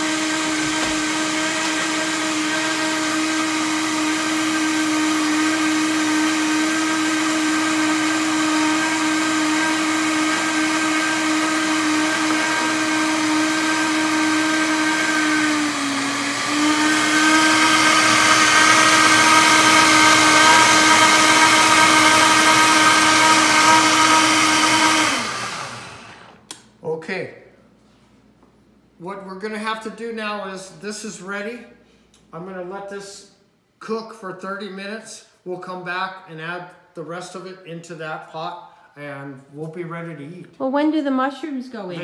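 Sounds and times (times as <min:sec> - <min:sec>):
blender motor running: 0:00.0 - 0:26.4.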